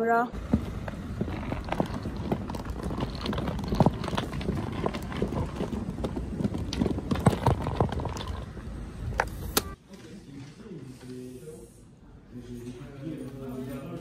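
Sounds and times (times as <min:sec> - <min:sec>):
suitcase wheels rumbling on stone: 0:00.3 - 0:09.6
wheels clacking over joints: 0:00.4 - 0:09.7.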